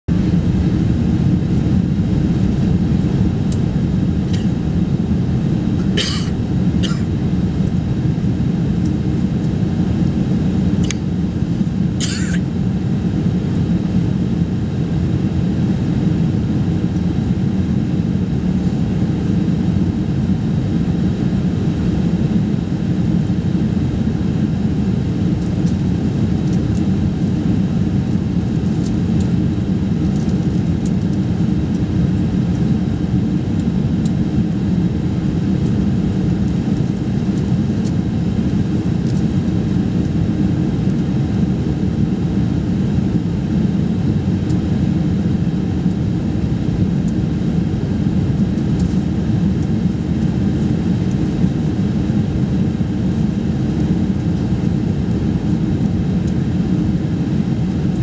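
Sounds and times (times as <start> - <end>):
jet engine and airflow roar: 0.1 - 58.0.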